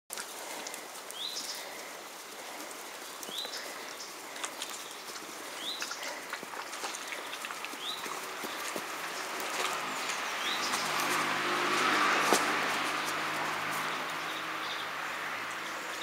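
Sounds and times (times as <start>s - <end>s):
faint clicks: 0.1s - 8.7s
bird chirping: 2.6s - 16.0s.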